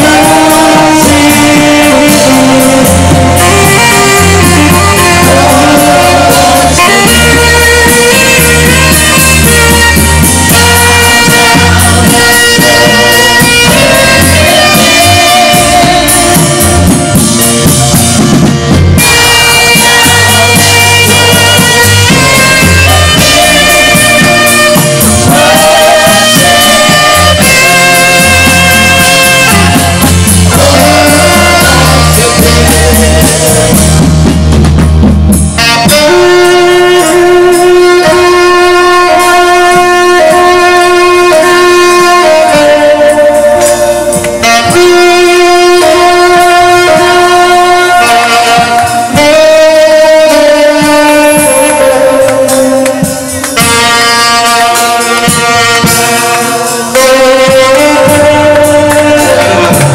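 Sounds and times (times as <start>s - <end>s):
deep bass accompaniment: 0.0s - 59.9s
saxophone melody: 0.0s - 59.9s.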